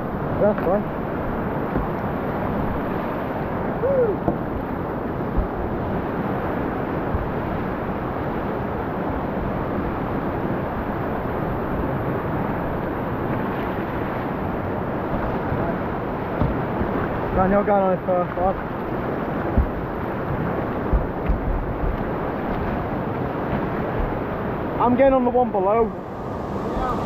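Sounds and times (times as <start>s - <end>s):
river water rushing through rapids: 0.0s - 27.0s
high rising and falling call: 25.8s - 27.0s.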